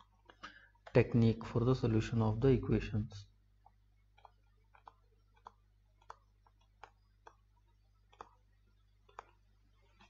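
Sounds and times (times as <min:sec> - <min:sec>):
low steady hum: 0:00.0 - 0:10.0
stylus tapping on tablet: 0:03.6 - 0:10.0.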